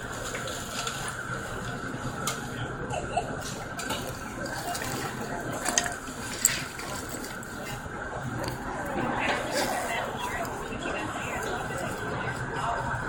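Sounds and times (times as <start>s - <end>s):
aircraft hum and whine: 0.0s - 13.0s.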